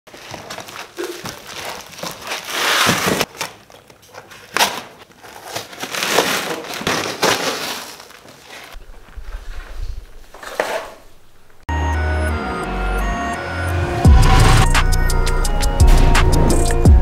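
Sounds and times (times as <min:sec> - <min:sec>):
cardboard and packing tape ripping: 0:00.1 - 0:08.8
knife slitting cardboard box: 0:01.5 - 0:03.3, 0:04.6 - 0:08.8.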